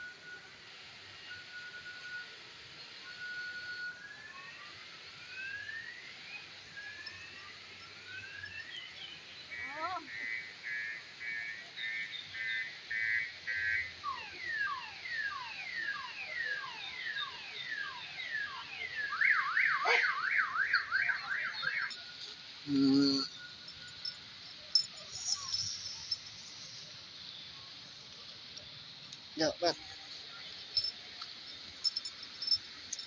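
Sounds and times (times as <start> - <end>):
electronic alarm: 13.0 - 26.8, 30.5 - 33.0.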